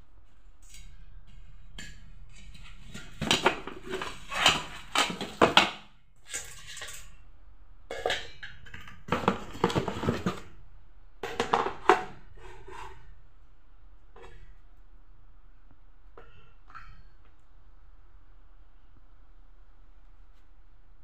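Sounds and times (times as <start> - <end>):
cookware clattering: 7.9 - 10.4.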